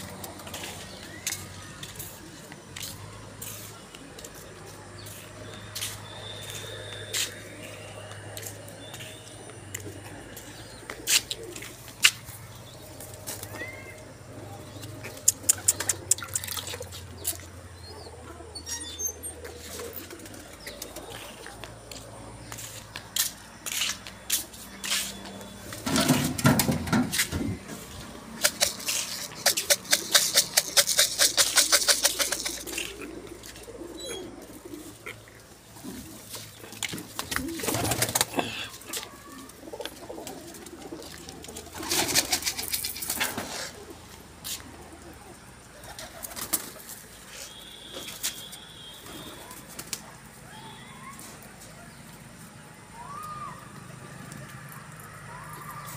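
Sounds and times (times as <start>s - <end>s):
pigeons cooing: 0.0s - 23.2s, 25.6s - 47.8s
wing flaps: 28.4s - 33.0s.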